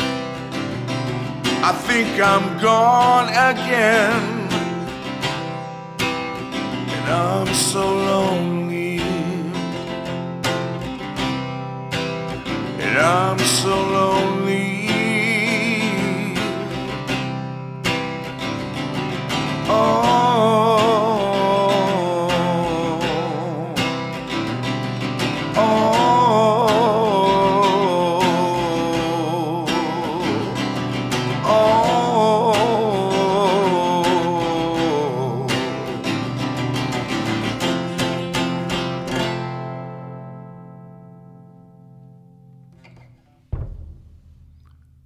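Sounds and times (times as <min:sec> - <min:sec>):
man singing with vibrato: 0:00.0 - 0:10.2, 0:12.5 - 0:17.6, 0:18.7 - 0:38.7.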